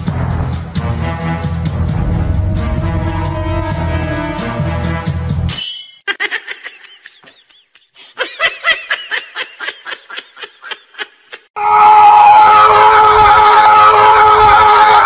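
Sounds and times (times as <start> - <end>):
person laughing: 6.0 - 11.5.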